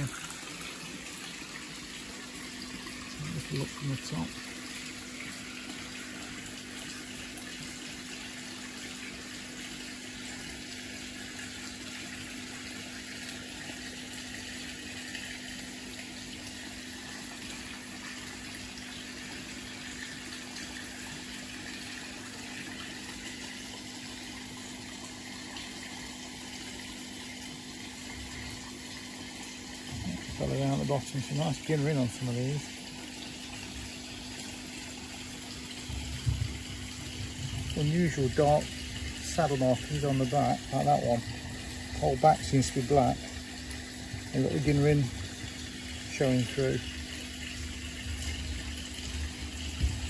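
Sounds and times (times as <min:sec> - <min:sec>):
water running into tank: 0:00.0 - 0:50.0.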